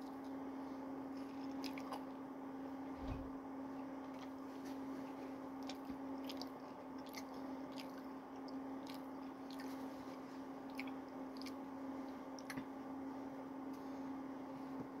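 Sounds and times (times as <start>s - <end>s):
low hum: 0.0s - 15.0s
person chewing fries: 1.2s - 2.1s, 5.6s - 11.6s.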